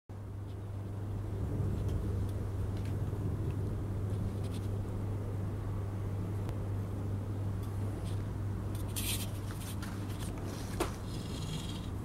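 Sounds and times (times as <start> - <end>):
clockwork motor humming: 11.0 - 12.0.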